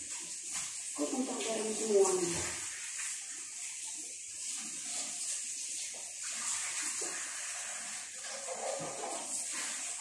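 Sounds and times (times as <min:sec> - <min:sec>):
dishes being washed: 0:00.0 - 0:10.0
tap running into sink: 0:05.8 - 0:10.0.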